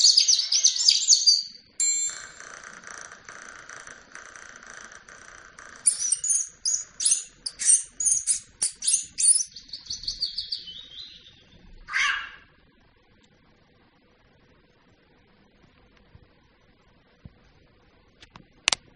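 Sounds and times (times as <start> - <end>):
recorded bird chirps from speaker: 0.0 - 1.6, 5.8 - 12.4.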